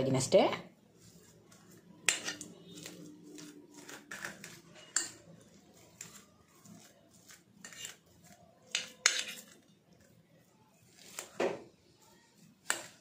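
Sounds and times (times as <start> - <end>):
fork scraping and tapping metal plate: 1.5 - 5.4, 6.8 - 9.7, 12.6 - 13.0.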